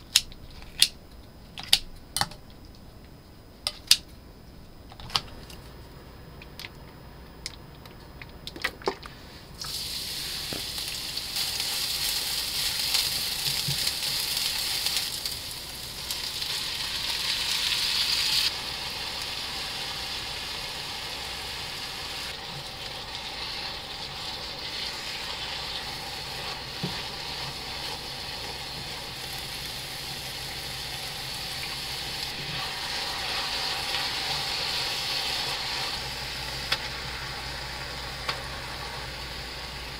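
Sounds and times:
food sizzling in a frying pan: 9.6 - 39.9.

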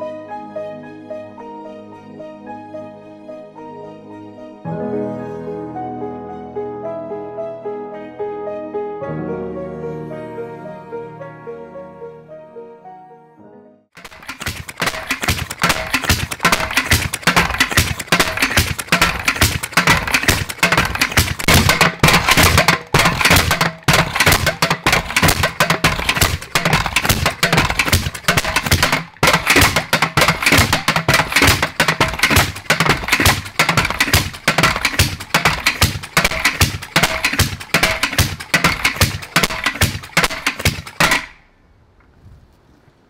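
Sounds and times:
gas rammer engine popping: 14.0 - 41.4.

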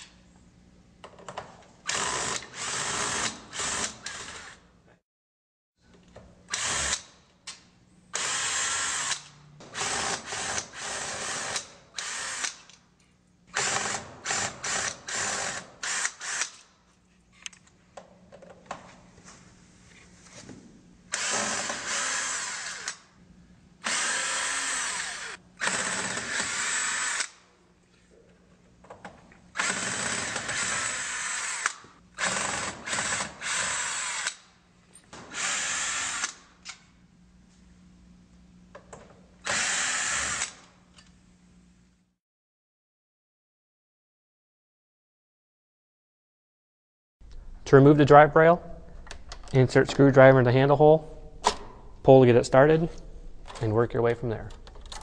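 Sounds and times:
cordless drill running: 21.1 - 23.0, 23.8 - 27.4, 29.6 - 34.4, 35.4 - 36.4, 39.4 - 40.6.

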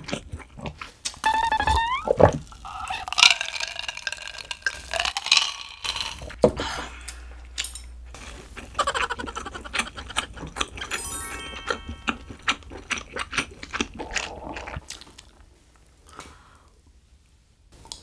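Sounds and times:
person drinking: 12.1 - 15.3.

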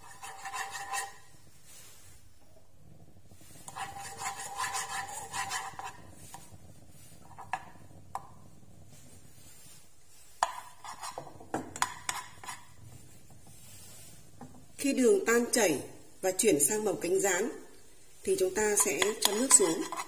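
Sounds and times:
metal spoon scraping saucepan: 0.0 - 1.4, 3.6 - 8.4, 10.3 - 14.6, 18.3 - 20.0.

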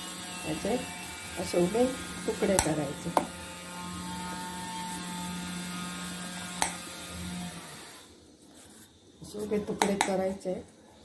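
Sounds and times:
knife tapping plastic cutting board: 9.8 - 10.2.

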